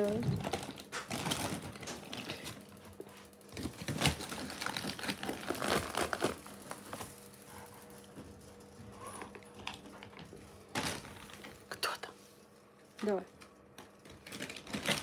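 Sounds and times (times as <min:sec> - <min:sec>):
plastic bag crinkling: 0:00.0 - 0:07.5, 0:13.9 - 0:15.0.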